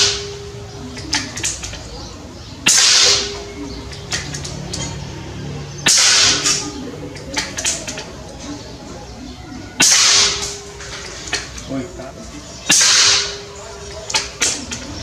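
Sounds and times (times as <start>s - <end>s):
air gun shots: 2.6s - 3.4s, 5.9s - 6.7s, 9.8s - 10.6s, 12.7s - 13.5s.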